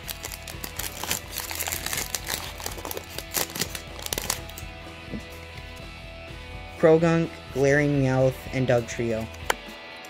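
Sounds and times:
foil wrapper crinkling: 0.0s - 4.6s
background music: 0.0s - 10.0s.

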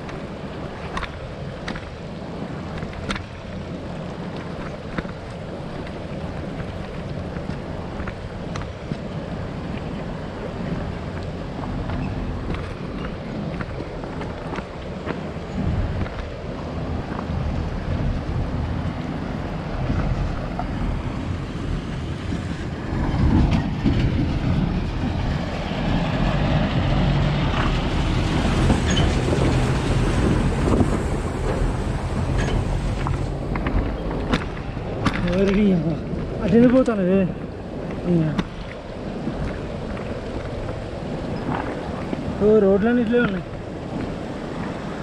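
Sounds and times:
bicycle rattling on stony road: 0.0s - 18.0s, 27.4s - 45.0s
wind buffeting microphone: 0.0s - 45.0s
sharp clicks and knocks: 0.9s - 1.9s, 2.7s - 3.4s, 28.5s - 37.0s.

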